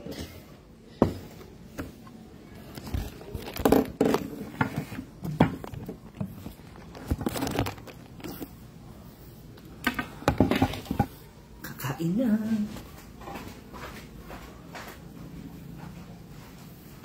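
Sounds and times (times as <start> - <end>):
rustling: 2.6 - 8.6.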